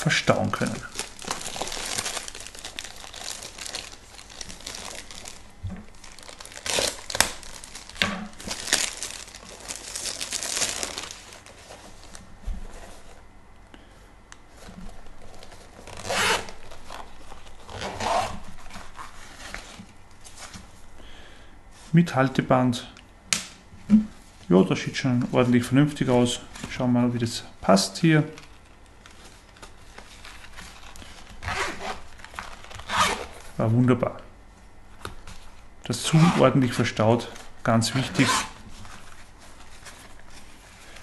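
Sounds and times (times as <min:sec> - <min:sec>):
plastic bag crinkling: 0:00.1 - 0:12.2, 0:28.3 - 0:33.6.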